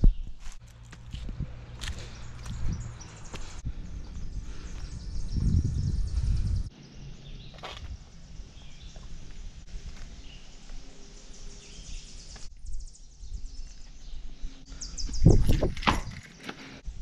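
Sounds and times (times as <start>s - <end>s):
footsteps: 0.0s - 5.5s
wind rumble on microphone: 0.0s - 16.2s.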